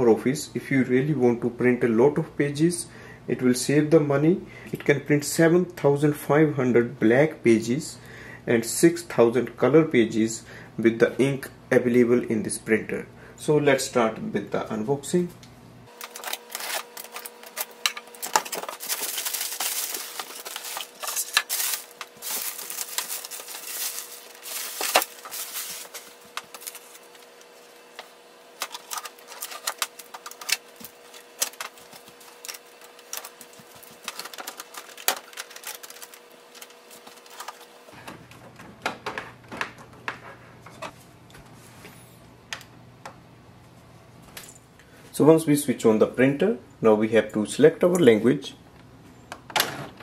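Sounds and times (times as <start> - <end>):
packaging rustling: 15.9 - 37.9
box cutter slitting tape: 16.0 - 22.0.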